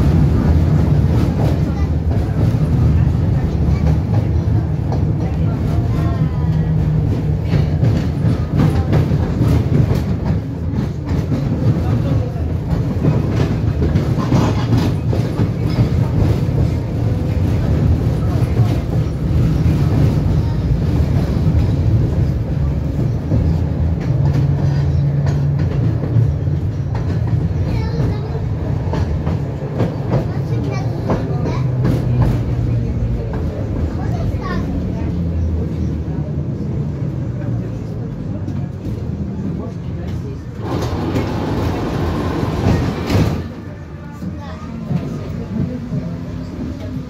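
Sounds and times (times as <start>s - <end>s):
clicks and knocks from tram car: 0.0s - 33.9s, 40.0s - 43.7s
tram wheels rumbling on rails: 0.0s - 47.0s.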